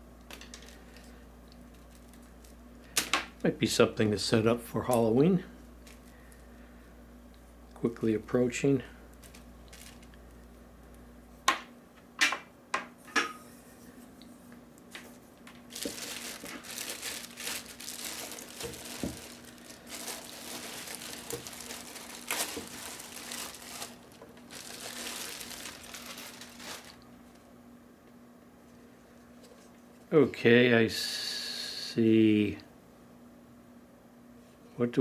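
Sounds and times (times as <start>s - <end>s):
plastic bag crinkling: 0.3s - 3.0s, 9.1s - 10.6s, 15.4s - 27.4s.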